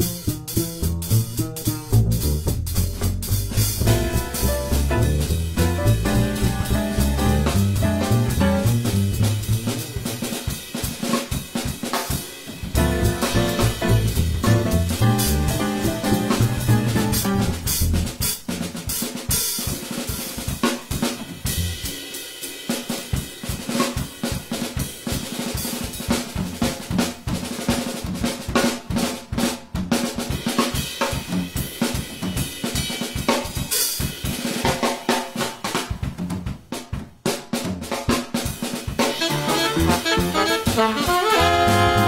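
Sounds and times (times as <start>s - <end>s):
jazz drum solo: 0.0s - 42.0s
band chord: 3.6s - 9.2s, 12.8s - 17.8s, 39.2s - 42.0s.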